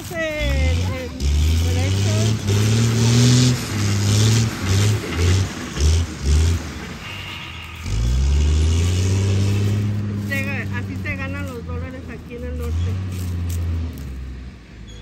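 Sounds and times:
machinery engine revving: 0.0s - 14.8s.

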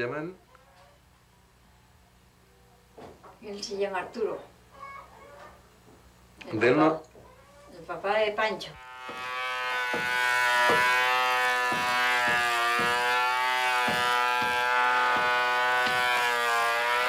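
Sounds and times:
power tool motor whining: 8.8s - 17.0s
knocks on wood: 9.0s - 16.2s.

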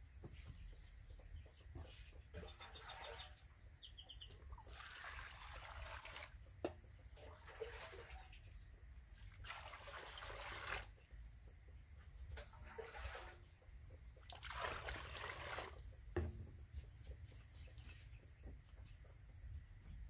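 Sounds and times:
water pouring into steel bowl: 4.7s - 6.4s, 9.3s - 10.9s, 14.3s - 15.8s.

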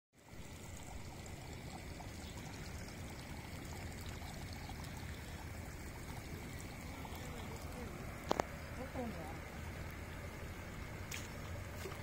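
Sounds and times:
water pouring into pond: 0.2s - 12.0s.

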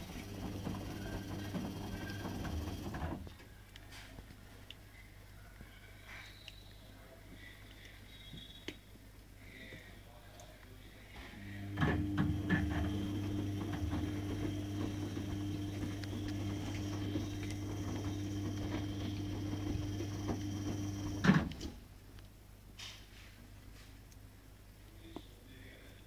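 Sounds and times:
steady machine hum: 0.0s - 3.2s, 11.4s - 21.7s.

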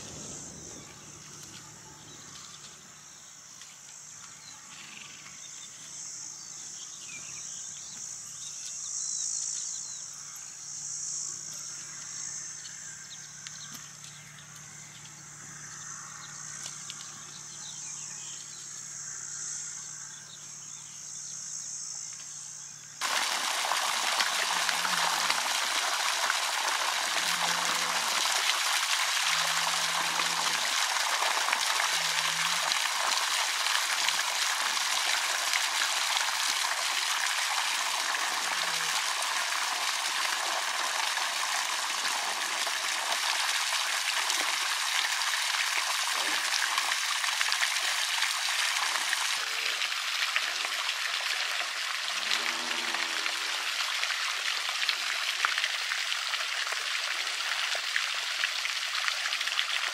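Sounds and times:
insects trilling: 0.0s - 59.9s
running water rushing: 23.0s - 59.9s.

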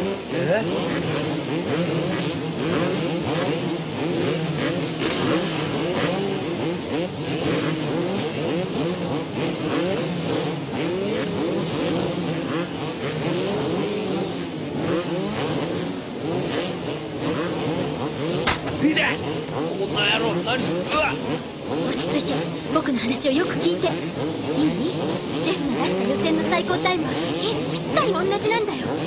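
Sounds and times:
motocross engines revving: 0.0s - 29.0s.

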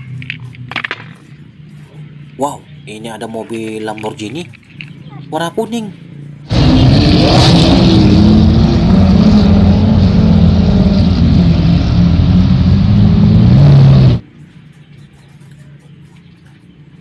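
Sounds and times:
car engine running at low revs: 6.0s - 14.2s.

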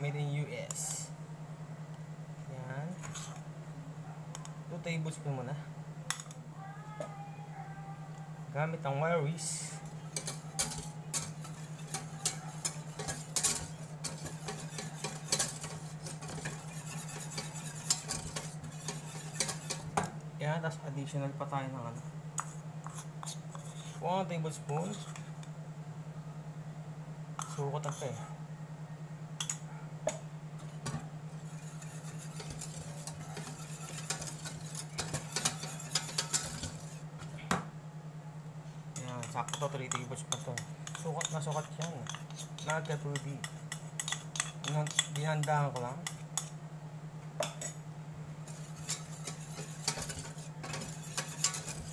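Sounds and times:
steady low hum: 0.0s - 51.9s
whisk clicking and scraping pan: 9.4s - 20.2s, 22.4s - 25.4s, 31.3s - 37.1s, 39.0s - 46.6s, 48.4s - 51.9s.

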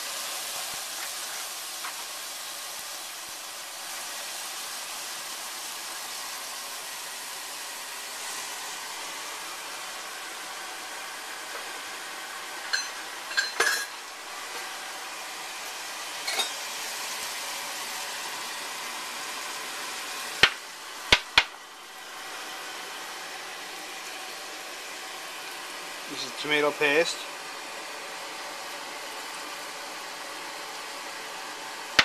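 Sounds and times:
steady hiss: 13.3s - 32.0s.

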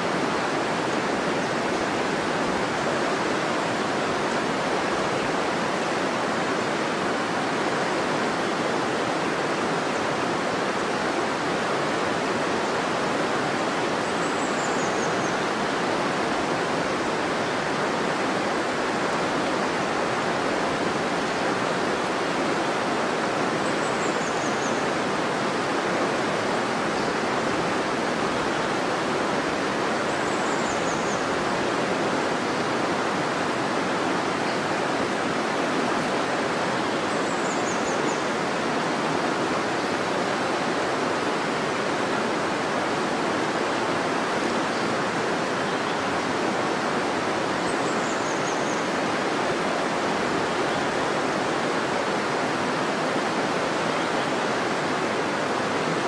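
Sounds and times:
river water rushing over rocks: 0.0s - 56.0s.

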